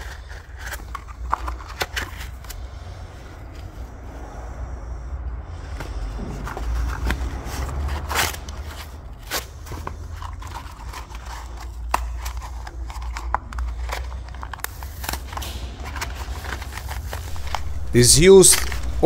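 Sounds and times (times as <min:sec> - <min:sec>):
stiff paper crackling and scraping: 0:00.0 - 0:03.9, 0:05.6 - 0:19.0
steady low rumble: 0:13.4 - 0:19.0.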